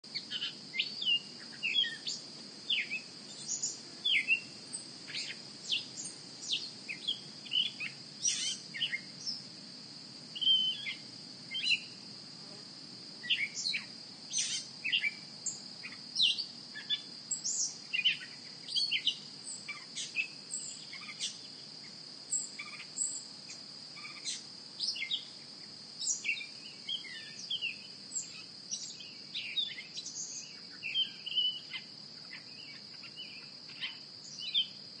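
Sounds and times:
bird chirps and calls: 0:00.2 - 0:04.5, 0:05.1 - 0:09.1, 0:10.4 - 0:11.9, 0:13.2 - 0:15.2.

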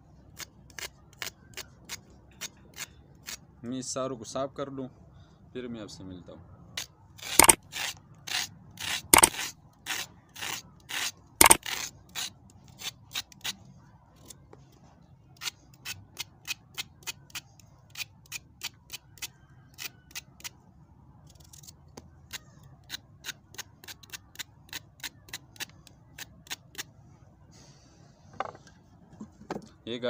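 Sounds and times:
knife scraping carrot: 0:00.4 - 0:03.4, 0:06.8 - 0:14.4, 0:15.4 - 0:20.6, 0:21.3 - 0:26.9.

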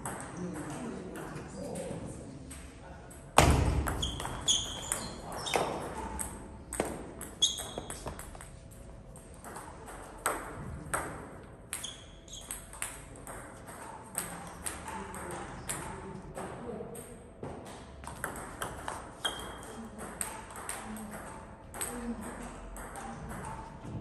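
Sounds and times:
ball bouncing clicks: 0:03.4 - 0:24.0
short high squeaks: 0:04.0 - 0:05.6, 0:07.4 - 0:08.0.

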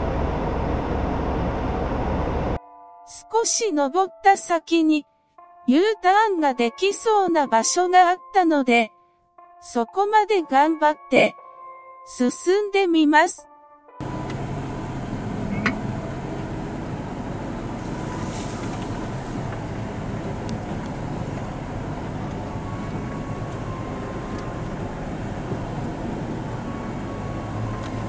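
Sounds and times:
car engine and road noise drone: 0:00.0 - 0:02.6, 0:14.0 - 0:28.0.

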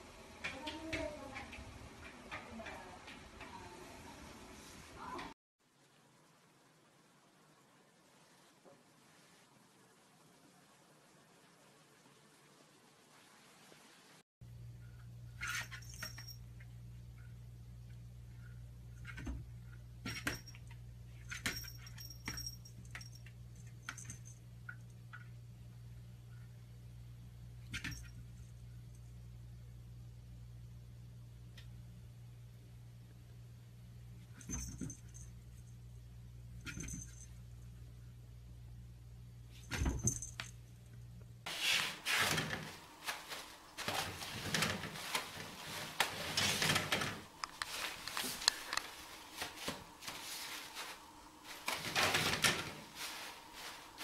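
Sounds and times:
low steady hum: 0:14.4 - 0:41.5, 0:42.3 - 0:54.0
paper rustling and rattling: 0:41.5 - 0:54.0.

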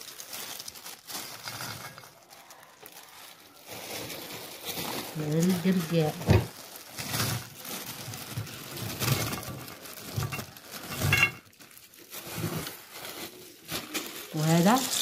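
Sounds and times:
plastic bag crinkling: 0:00.0 - 0:15.0
nuts clattering onto a plate: 0:10.2 - 0:11.5.

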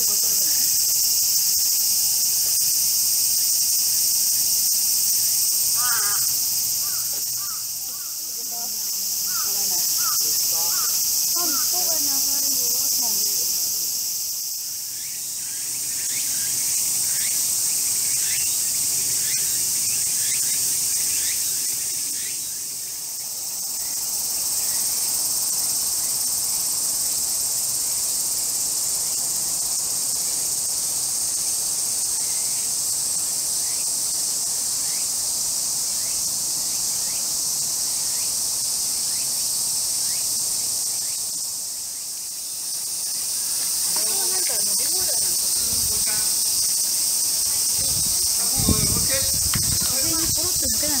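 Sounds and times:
insects shrilling chorus: 0:00.0 - 0:51.0.

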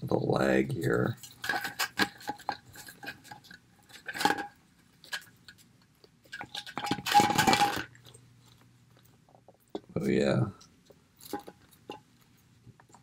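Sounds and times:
plastic rubbing: 0:00.0 - 0:09.9
plastic toy clicks and rustles: 0:00.8 - 0:08.0.

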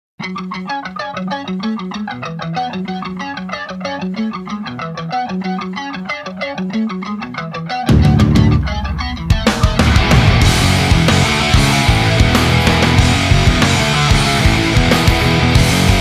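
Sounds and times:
rock band playing: 0:00.2 - 0:16.0
fast run of single notes: 0:07.9 - 0:16.0.

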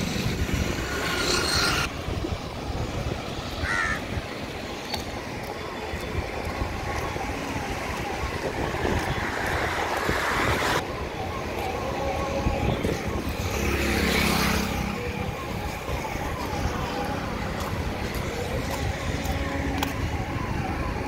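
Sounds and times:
wind rumble on microphone: 0:00.0 - 0:21.0
crow cawing: 0:03.6 - 0:04.0.

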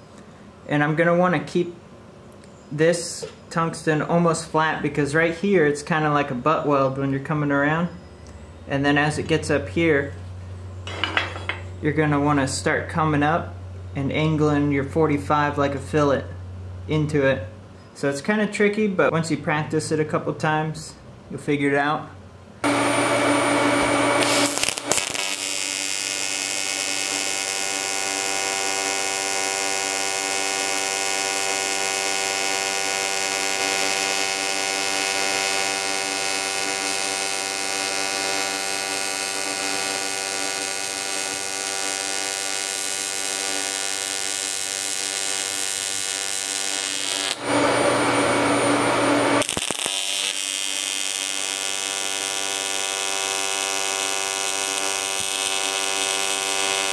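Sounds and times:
tig welding arc buzz: 0:22.6 - 0:56.9.

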